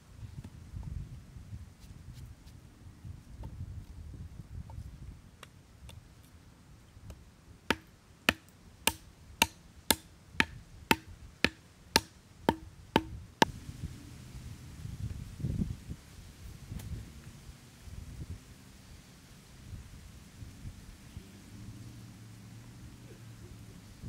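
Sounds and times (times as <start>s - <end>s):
hatchet chopping wood: 7.1s - 13.5s.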